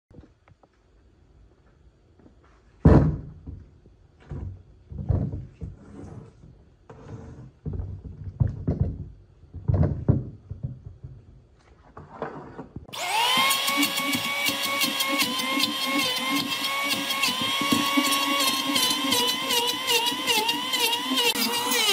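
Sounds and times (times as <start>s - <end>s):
power tool whining: 12.9s - 21.9s.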